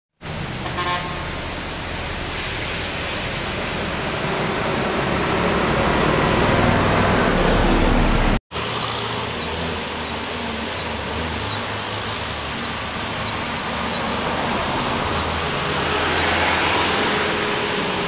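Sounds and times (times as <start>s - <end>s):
constant hiss of noise: 0.2s - 6.0s
diesel truck engine approaching: 0.2s - 18.0s.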